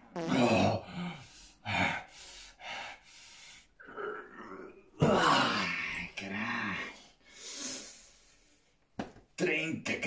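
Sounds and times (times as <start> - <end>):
man breathing hard: 0.8 - 3.8.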